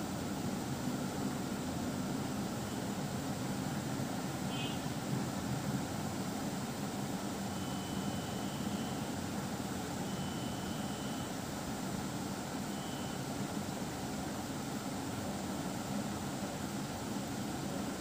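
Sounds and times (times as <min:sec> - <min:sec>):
faint thin high tone: 0:07.6 - 0:09.0, 0:10.1 - 0:11.3, 0:12.7 - 0:13.2.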